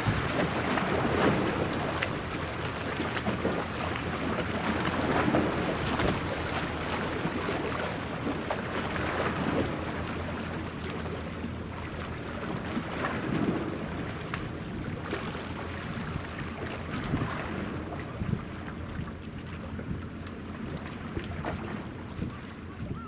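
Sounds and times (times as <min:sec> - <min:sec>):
ship engine hum: 0:00.0 - 0:23.0
small waves washing on shore: 0:00.0 - 0:23.0
wind: 0:00.0 - 0:23.0.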